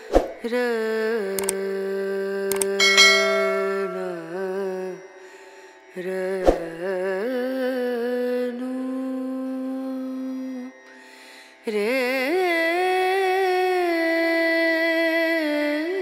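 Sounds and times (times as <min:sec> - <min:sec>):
person singing long wavering notes: 0:00.4 - 0:05.3, 0:06.0 - 0:10.7.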